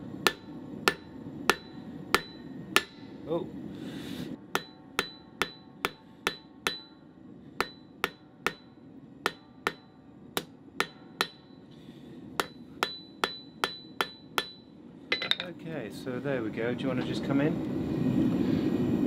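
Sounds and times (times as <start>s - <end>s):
hammer clanging on anvil: 12.4s - 15.5s.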